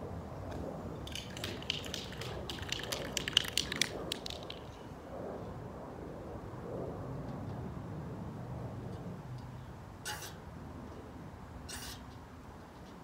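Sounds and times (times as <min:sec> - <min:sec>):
spray can rattling: 0:01.0 - 0:04.7.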